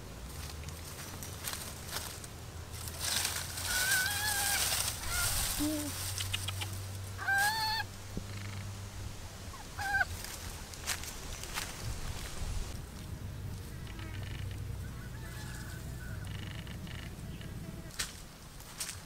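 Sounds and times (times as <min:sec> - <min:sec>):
rustling: 0:00.0 - 0:08.7
bird calling: 0:03.0 - 0:08.7, 0:09.5 - 0:10.2, 0:13.8 - 0:17.9.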